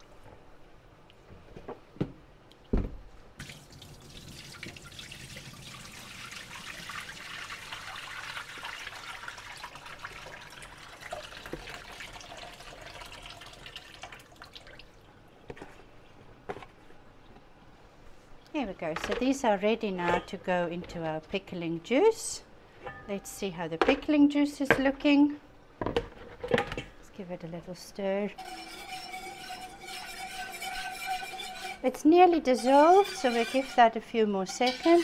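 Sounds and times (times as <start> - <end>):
water pouring into a steel sink: 3.4 - 15.0.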